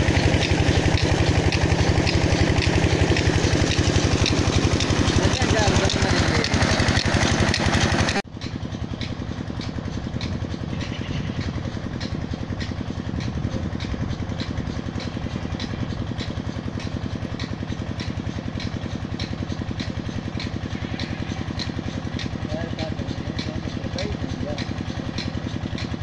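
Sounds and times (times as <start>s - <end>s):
diesel engine running: 0.0s - 26.0s
water pouring from pump: 0.0s - 26.0s.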